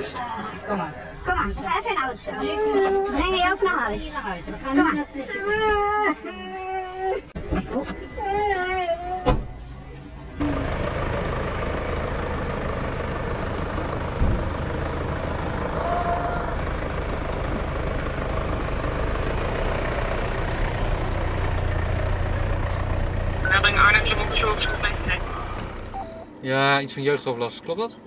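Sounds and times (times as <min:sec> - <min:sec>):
street noise: 0:00.0 - 0:28.0
car engine idling: 0:09.0 - 0:26.3.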